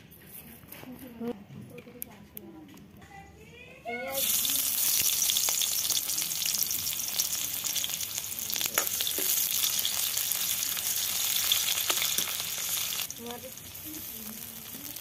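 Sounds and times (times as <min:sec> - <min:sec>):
onions sizzling in oil: 0:04.1 - 0:15.0.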